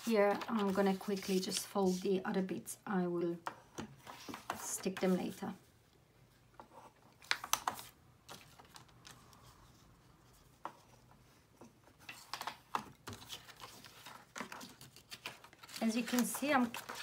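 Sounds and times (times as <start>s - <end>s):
paper rustling: 0.0s - 2.2s, 12.0s - 17.0s
paper folding clicks and taps: 7.2s - 9.2s, 12.0s - 17.0s.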